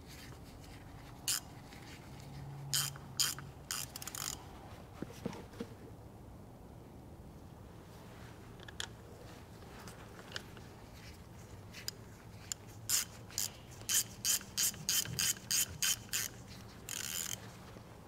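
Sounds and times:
ratchet wrench clicking: 1.2 - 1.8, 2.7 - 4.4, 11.9 - 17.4.

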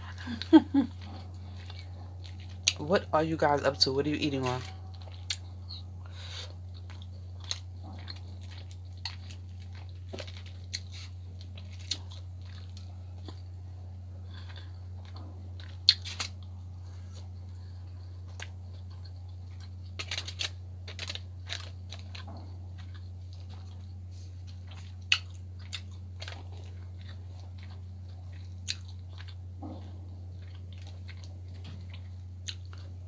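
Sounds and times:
close chewing: 0.0 - 33.0
steady low hum: 0.0 - 33.0.

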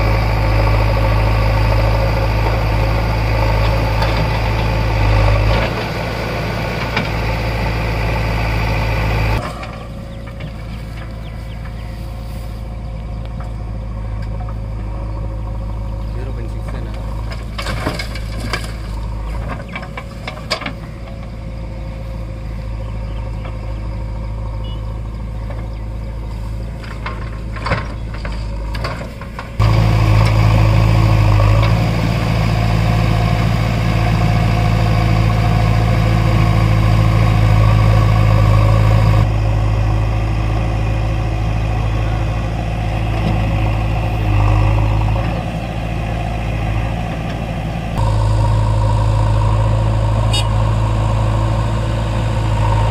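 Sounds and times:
diesel engine running: 0.0 - 52.9
diesel engines idling: 0.0 - 52.9
knocks and clunks: 16.5 - 21.3, 26.8 - 30.5.

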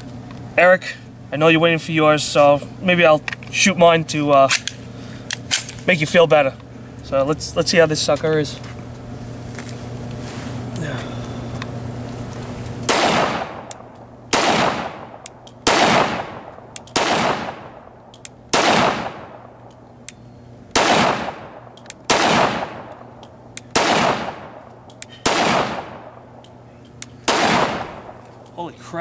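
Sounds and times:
pistol shots: 12.9 - 17.9, 18.5 - 19.5, 20.7 - 23.1, 23.7 - 24.6, 25.2 - 26.4, 27.2 - 28.2.

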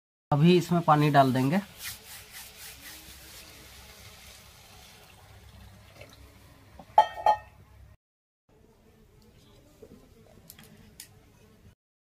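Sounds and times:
water pouring into metal pan: 1.7 - 6.6.

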